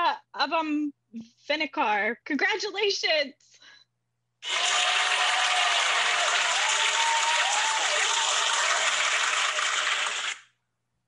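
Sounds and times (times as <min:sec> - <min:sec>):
cheers and whoops: 0:04.4 - 0:10.4
crowd applause: 0:04.4 - 0:10.4.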